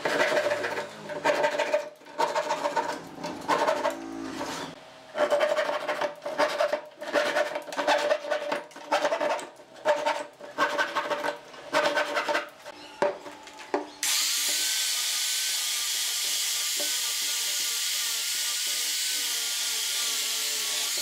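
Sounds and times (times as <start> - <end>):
hand saw cutting wood: 0.0 - 12.6, 14.0 - 21.0
power sander hissing: 14.0 - 21.0.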